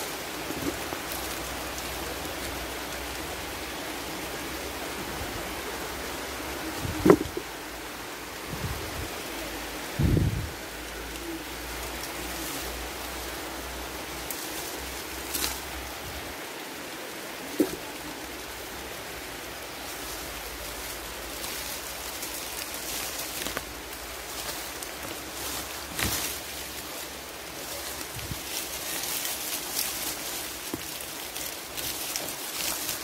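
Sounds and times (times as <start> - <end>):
branches and leaves rustling: 0.0 - 33.0
steady rushing hiss: 0.0 - 33.0
dull thump: 7.0 - 7.4.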